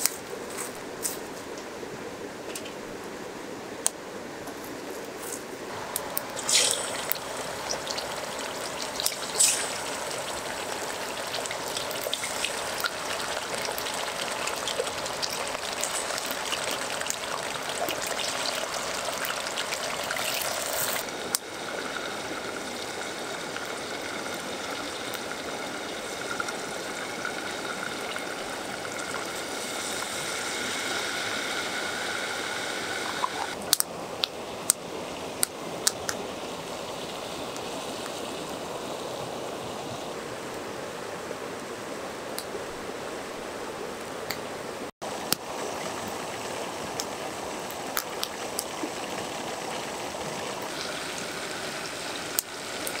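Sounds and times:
campfire crackling: 3.8 - 36.2, 45.0 - 53.0
river flowing: 5.6 - 53.0.

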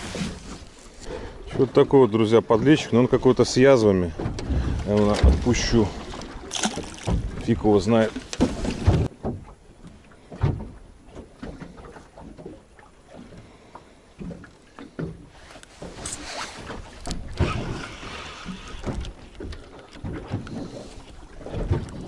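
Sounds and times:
knocks and handling noises in boat: 0.0 - 22.0.

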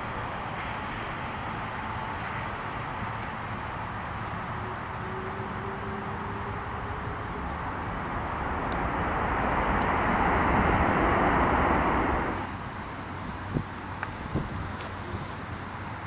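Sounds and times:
jet engines rushing: 0.0 - 15.6.

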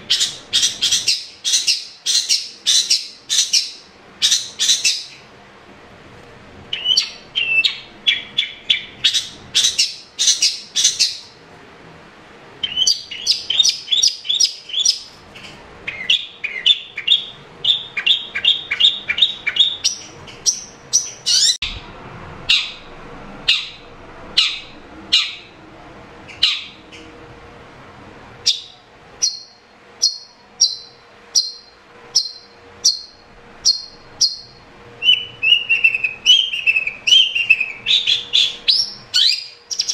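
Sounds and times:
bird singing high chirps: 0.1 - 5.2, 6.7 - 11.4, 12.6 - 21.8, 28.4 - 39.9.

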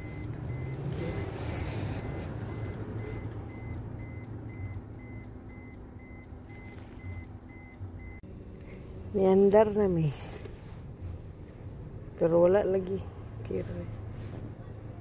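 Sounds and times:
vehicle warning beeper: 0.0 - 8.2
low engine hum: 0.0 - 15.0.

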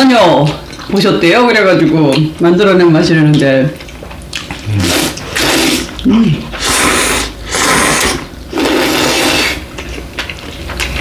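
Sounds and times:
people slurping noodles: 4.5 - 10.0.

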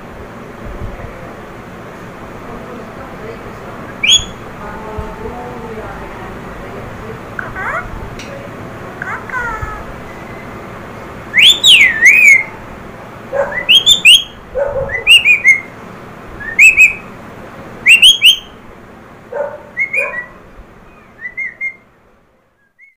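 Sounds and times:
parakeet shrill whistle-like calls: 4.0 - 4.4, 11.3 - 12.6, 13.5 - 15.7, 16.4 - 17.1, 17.8 - 18.6, 19.8 - 20.4, 21.0 - 21.8.

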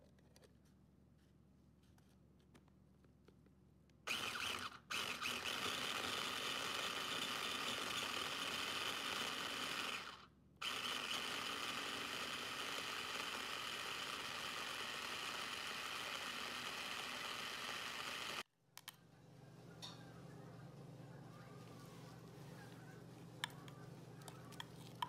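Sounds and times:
electric food chopper running: 4.1 - 18.5.

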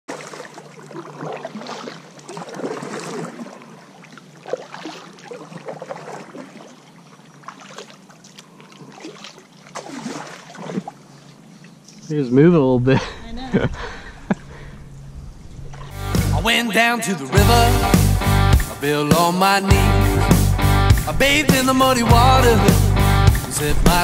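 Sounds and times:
paddle splashing in water: 0.1 - 12.0.

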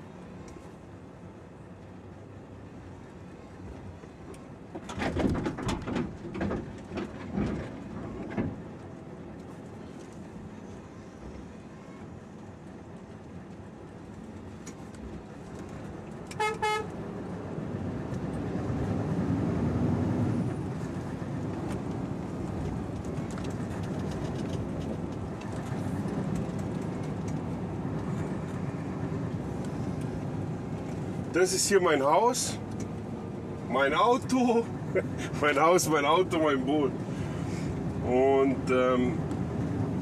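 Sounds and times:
truck horn toot: 16.3 - 16.9.

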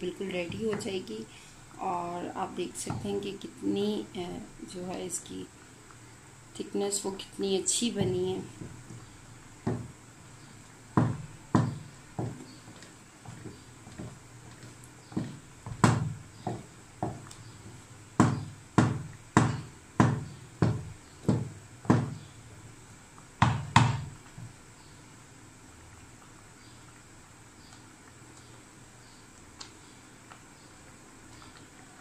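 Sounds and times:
wooden spoon mashing in pot: 7.9 - 22.3.

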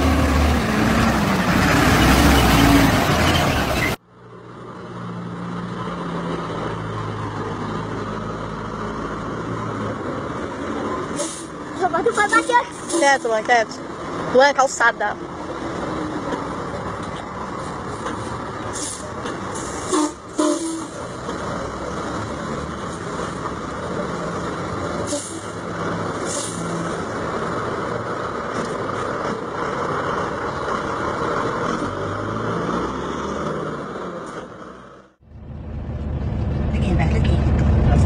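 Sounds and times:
diesel truck engine running: 0.0 - 38.0
short air hisses: 11.2 - 11.6.

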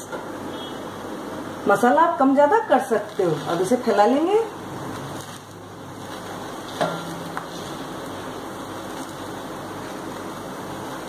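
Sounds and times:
food sizzling hiss: 3.0 - 11.0.

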